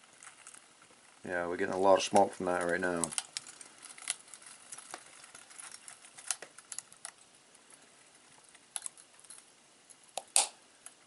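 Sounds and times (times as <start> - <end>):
faint fire hiss: 0.0 - 11.0
wood fire crackling: 0.0 - 11.0
sharp pops: 10.1 - 10.6.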